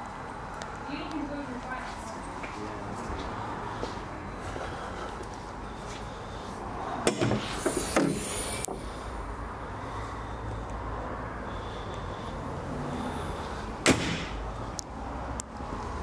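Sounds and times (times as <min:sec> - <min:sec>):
sharp knock: 0:13.8 - 0:14.4.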